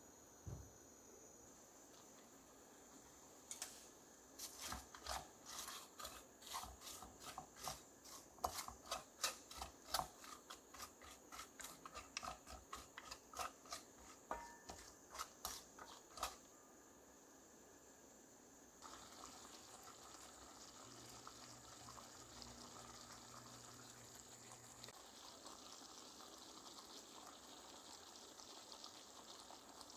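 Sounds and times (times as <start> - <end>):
spatula stirring nuts in metal pot: 4.4 - 16.5.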